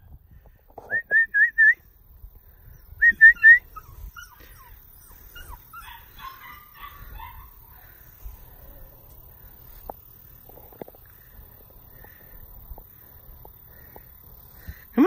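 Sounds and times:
person whistling: 0:00.9 - 0:01.8, 0:03.0 - 0:03.7
puppy whining: 0:03.2 - 0:07.5.

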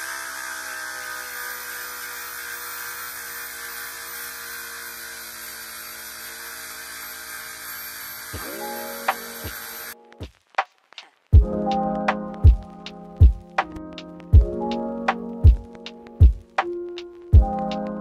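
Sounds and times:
power sander whining: 0:00.0 - 0:10.0
sanding disc hissing on surface: 0:00.0 - 0:10.0.

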